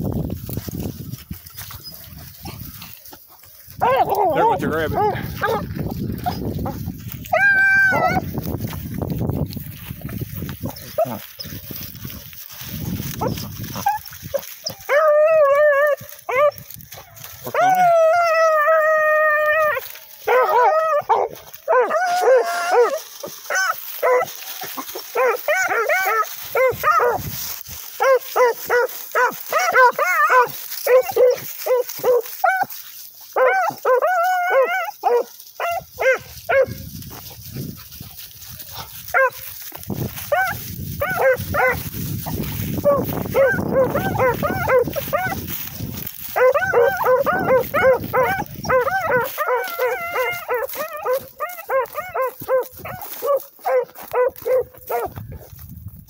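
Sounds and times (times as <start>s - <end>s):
hounds chop barking: 1.8s - 8.4s, 10.4s - 55.5s
hound bawling: 3.8s - 8.3s, 42.8s - 45.5s, 46.2s - 55.1s.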